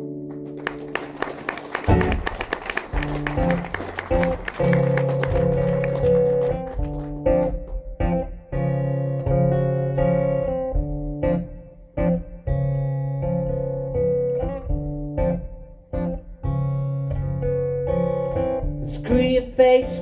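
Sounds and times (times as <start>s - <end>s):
acoustic guitar strumming: 1.9s - 20.0s.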